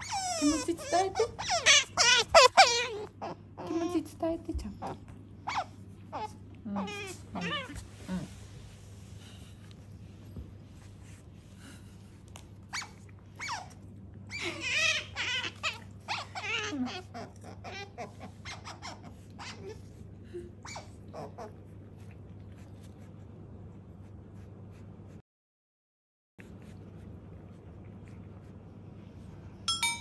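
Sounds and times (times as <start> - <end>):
otter squeaking and chirping: 0.0 - 4.0, 4.7 - 7.8, 12.7 - 19.8.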